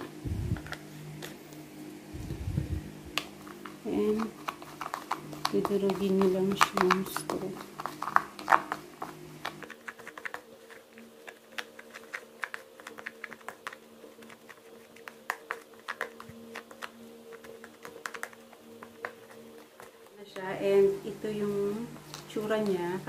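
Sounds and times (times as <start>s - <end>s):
straw tapping and mashing paste: 3.1s - 20.4s.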